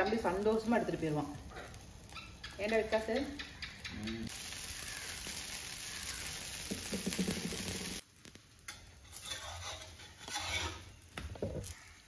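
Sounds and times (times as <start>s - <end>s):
food sizzling on a griddle: 0.0s - 12.0s
quiet kitchen sounds: 1.3s - 12.0s.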